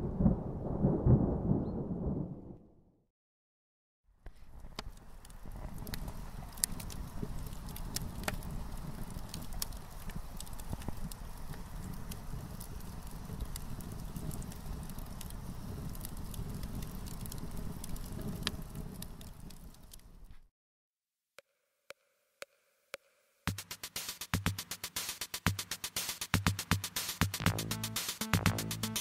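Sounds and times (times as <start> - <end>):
clicks and crackles: 4.2 - 20.5
electronic music with drum beat: 22.4 - 29.0.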